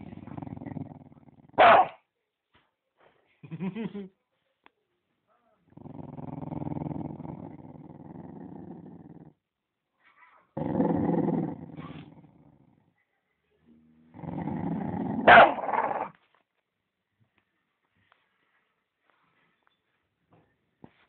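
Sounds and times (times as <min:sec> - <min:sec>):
dog growling: 0:00.0 - 0:01.6, 0:05.7 - 0:09.4, 0:10.6 - 0:12.9, 0:14.0 - 0:16.2.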